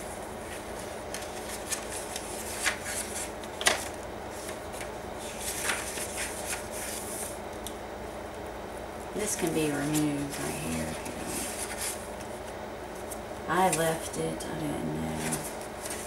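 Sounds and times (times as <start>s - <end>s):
paper pages rustling: 0.4s - 7.4s, 9.7s - 13.2s, 15.1s - 16.0s
paper crackling: 0.4s - 7.7s, 9.3s - 13.2s, 15.0s - 16.0s.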